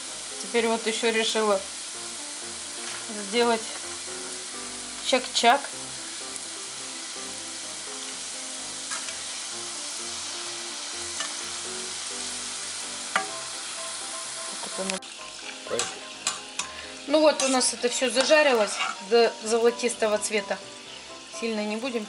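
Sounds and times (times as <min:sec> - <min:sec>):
dough sizzling in hot oil: 0:00.0 - 0:22.0.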